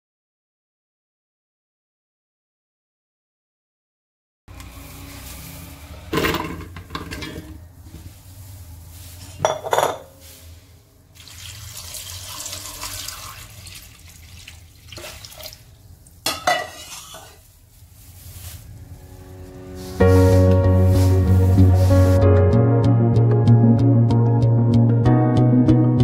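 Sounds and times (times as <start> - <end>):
potatoes clattering into metal pot: 6.1 - 7.6, 16.2 - 17.4
water pouring: 11.1 - 16.2.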